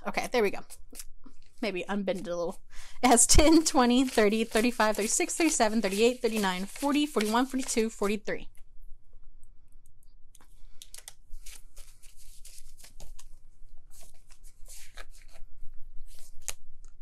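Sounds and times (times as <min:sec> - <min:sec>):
paper bills rustling and flicking: 0:03.0 - 0:08.4, 0:10.8 - 0:16.6
plastic crinkling: 0:03.0 - 0:08.4, 0:10.8 - 0:15.4.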